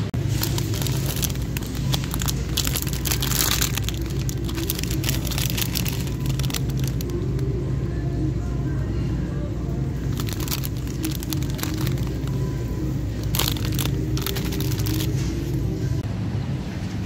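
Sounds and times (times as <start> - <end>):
plastic package crinkling: 0.2 - 7.4, 10.0 - 15.3.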